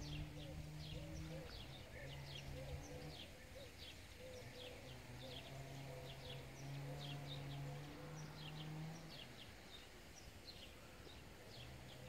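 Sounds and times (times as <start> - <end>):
birds chirping: 0.0 - 12.0.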